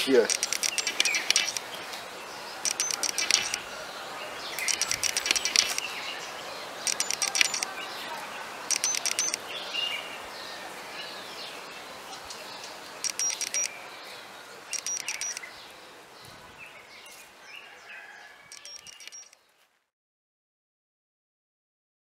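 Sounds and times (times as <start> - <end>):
steady outdoor hiss: 0.0 - 19.7
bird rapid ringing trill: 0.3 - 1.6, 2.6 - 3.7, 4.6 - 5.9, 6.9 - 7.8, 8.7 - 9.4, 13.0 - 13.7, 14.7 - 15.4, 18.5 - 19.4
soft bird chirps: 0.3 - 19.5.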